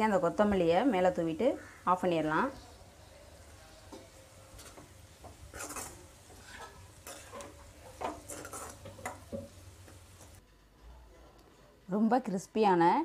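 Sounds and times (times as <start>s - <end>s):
spoon scraping metal pan: 3.9s - 10.4s.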